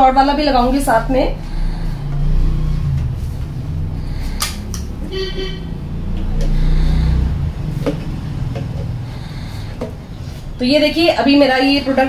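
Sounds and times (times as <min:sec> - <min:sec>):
low rumble: 0:00.3 - 0:10.6
vehicle horn toot: 0:05.0 - 0:05.9.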